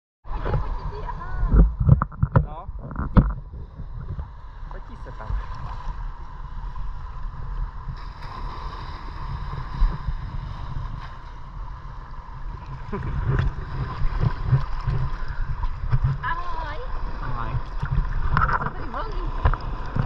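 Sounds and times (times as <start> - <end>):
sea water sloshing: 0.3 - 20.0
wind rumble: 0.3 - 20.0.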